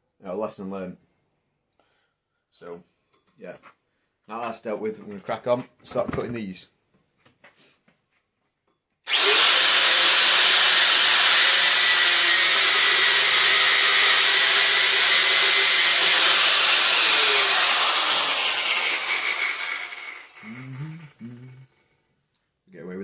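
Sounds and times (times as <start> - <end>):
angle grinder cutting metal: 9.1 - 21.7.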